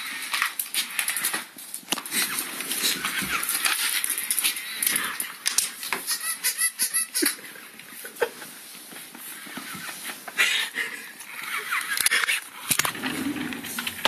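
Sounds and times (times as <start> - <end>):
dog scuffling on tile floor: 0.0 - 6.2, 7.8 - 12.3.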